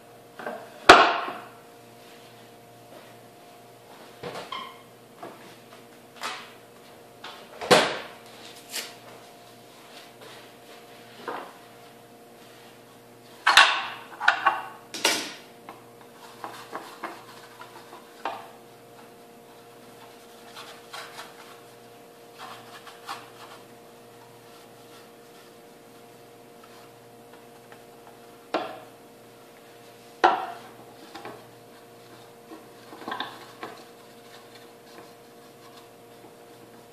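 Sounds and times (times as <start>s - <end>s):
faint steady hum: 0.0s - 36.9s.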